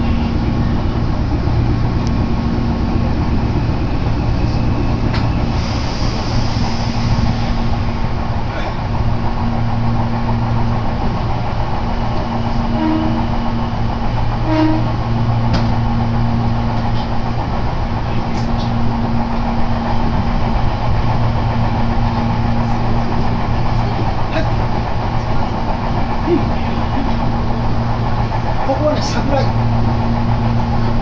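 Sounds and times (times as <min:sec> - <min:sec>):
low hum: 0:00.0 - 0:31.0
train wheels rumbling: 0:00.0 - 0:31.0.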